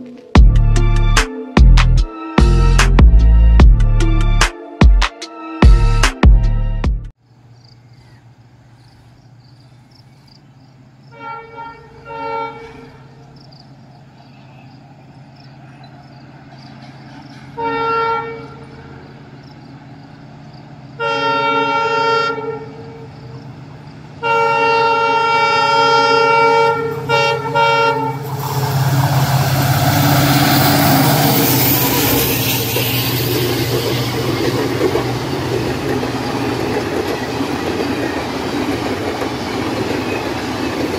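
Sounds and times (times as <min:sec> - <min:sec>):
locomotive horn blasts: 0:11.1 - 0:13.2, 0:17.4 - 0:19.0, 0:21.0 - 0:23.2, 0:24.2 - 0:34.2
train wheels rumbling: 0:11.8 - 0:21.0, 0:22.8 - 0:40.9.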